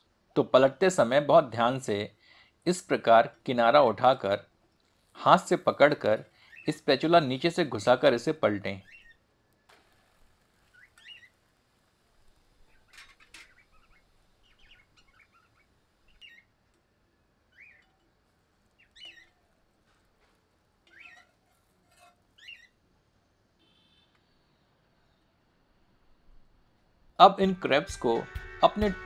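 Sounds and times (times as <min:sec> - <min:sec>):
faint bird chirps: 0:06.4 - 0:06.8, 0:08.8 - 0:11.4, 0:12.6 - 0:19.7, 0:20.8 - 0:22.8, 0:23.6 - 0:25.8.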